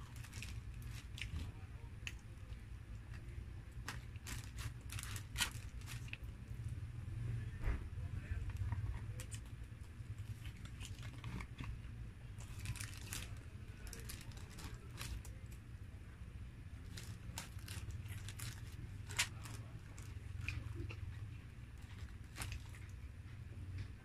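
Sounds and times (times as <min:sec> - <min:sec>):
paper crinkling and rustling: 0:00.0 - 0:01.6, 0:03.2 - 0:06.3, 0:08.5 - 0:11.8, 0:12.4 - 0:15.6, 0:16.8 - 0:20.6, 0:21.7 - 0:23.3.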